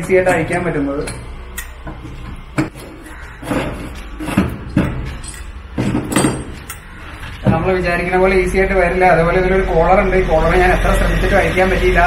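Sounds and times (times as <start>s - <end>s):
metal parts knocking on wood: 3.4s - 6.7s.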